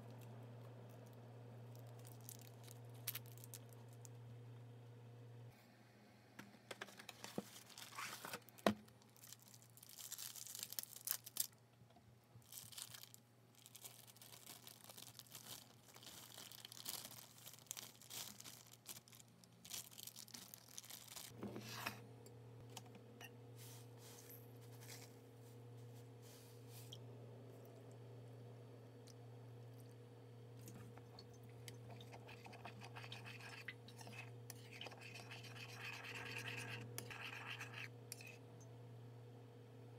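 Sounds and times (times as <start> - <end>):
bag crinkling and tearing: 1.8 - 3.9, 7.2 - 11.6, 12.4 - 21.4.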